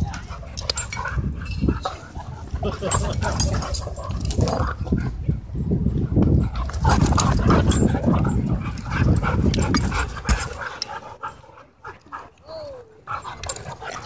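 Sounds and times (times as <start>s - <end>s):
dogs play-fighting: 0.0s - 14.0s
low rumbling growls: 2.0s - 10.6s.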